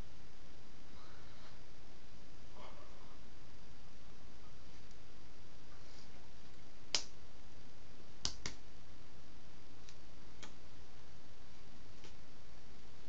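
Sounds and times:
microphone hiss: 0:00.0 - 0:13.0
hands tapping and clicking: 0:08.2 - 0:08.6.

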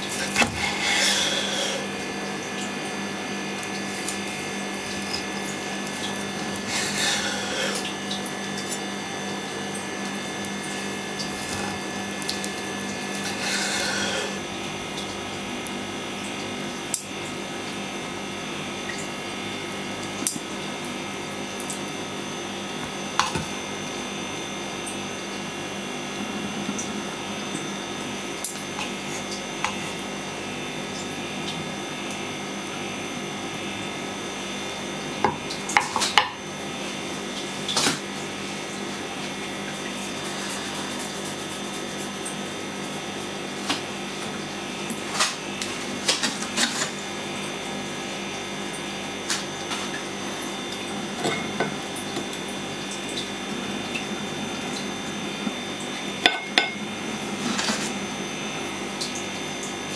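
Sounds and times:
steady background hum: 0:00.0 - 0:59.9.

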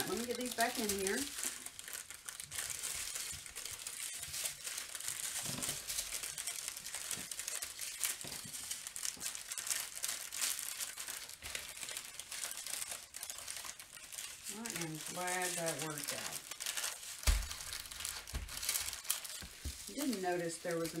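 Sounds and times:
plastic bags crinkling: 0:00.0 - 0:21.0.

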